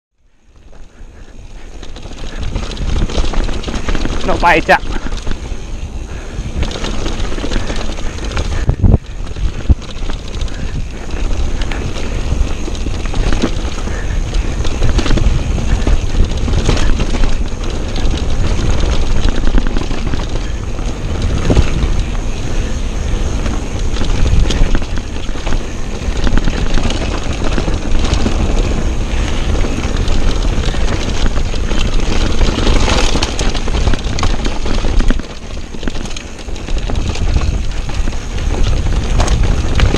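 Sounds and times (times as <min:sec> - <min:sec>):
wind rumble on microphone: 0:00.3 - 0:39.9
tyres rolling on dirt: 0:00.4 - 0:39.9
bike knocks and rattles: 0:00.6 - 0:39.9.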